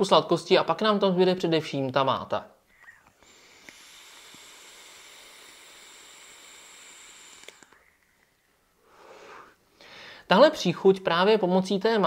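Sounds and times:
vape hiss with thin whistle: 0:02.8 - 0:09.6
breathy exhale: 0:08.8 - 0:10.3.

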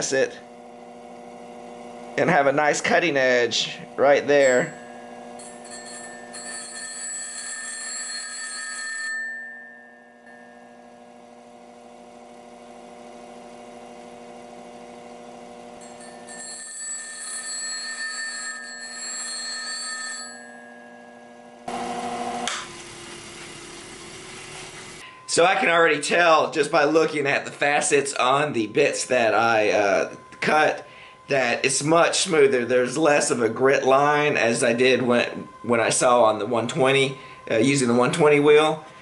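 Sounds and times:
bench grinder motor humming: 0:00.0 - 0:07.6, 0:09.6 - 0:17.2, 0:20.2 - 0:39.0
high ringing grinding scrape: 0:02.2 - 0:11.8, 0:15.7 - 0:22.2, 0:24.4 - 0:39.0.

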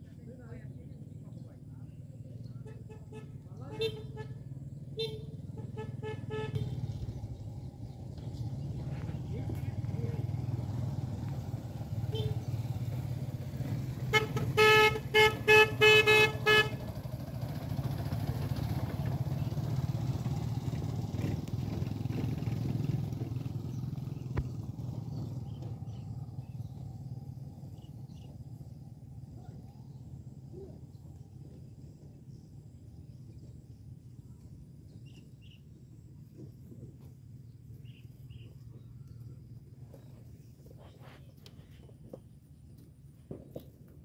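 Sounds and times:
motorbike engine running: 0:00.0 - 0:44.0
horn tooting: 0:02.5 - 0:07.3, 0:11.9 - 0:12.8, 0:13.9 - 0:21.8.

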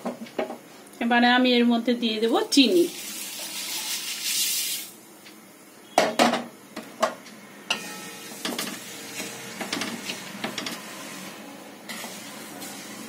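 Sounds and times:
spatula stirring and scraping pan: 0:07.7 - 0:13.0.

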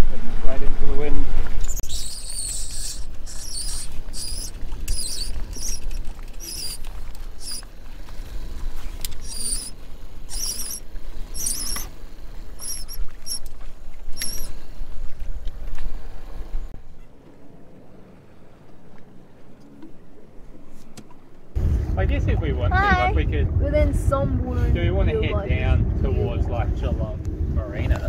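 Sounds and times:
sail halyard squeaks: 0:01.6 - 0:17.6.

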